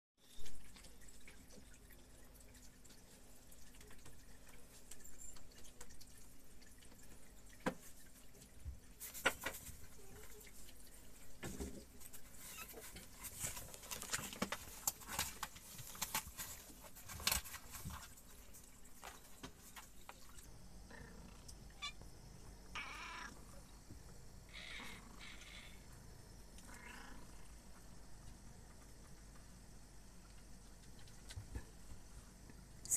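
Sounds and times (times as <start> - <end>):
cats crunching dry kibble: 12.8 - 20.2
cat calls: 22.7 - 23.4.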